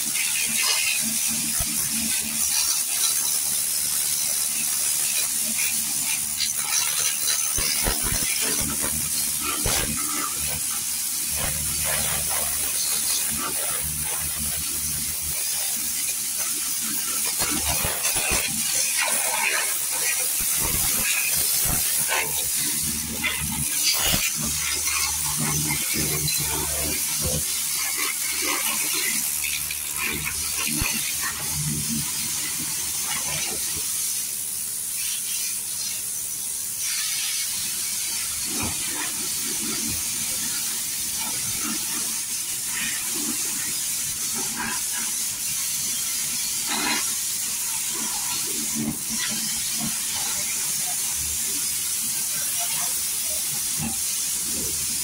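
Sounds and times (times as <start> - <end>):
high-pressure water jet hissing: 0.0 - 55.0.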